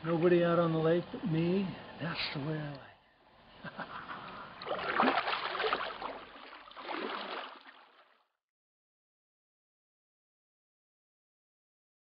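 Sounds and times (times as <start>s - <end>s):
kayak paddle splashing in water: 4.6s - 8.2s.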